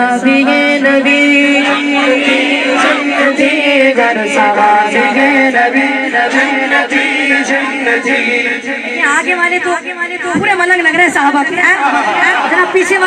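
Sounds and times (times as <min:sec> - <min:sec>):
men singing devotional song: 0:00.0 - 0:09.1.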